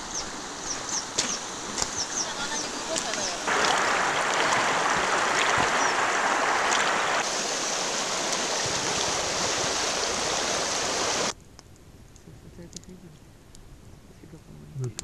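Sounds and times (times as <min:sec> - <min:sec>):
river rushing over rocks: 0:00.0 - 0:11.3.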